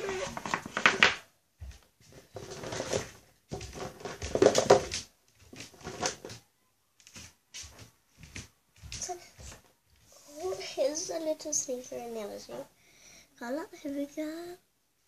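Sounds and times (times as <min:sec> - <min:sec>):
handling noise rustling: 0:00.0 - 0:11.0.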